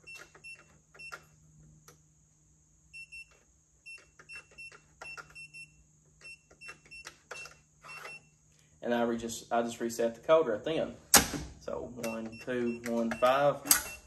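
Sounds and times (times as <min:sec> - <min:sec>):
keypad beeps with clicks: 0:00.0 - 0:01.3, 0:03.0 - 0:08.2, 0:12.0 - 0:14.0.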